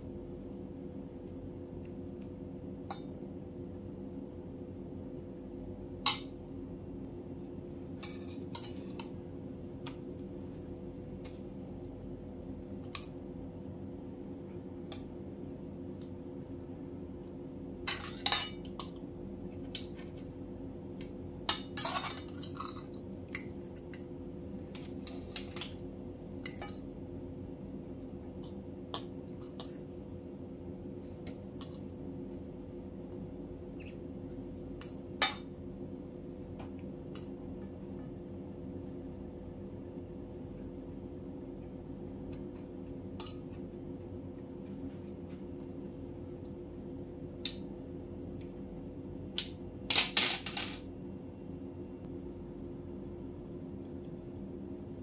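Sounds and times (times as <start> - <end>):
steady low hum: 0.0 - 55.0
knife and fork clinking on plate: 43.2 - 43.5.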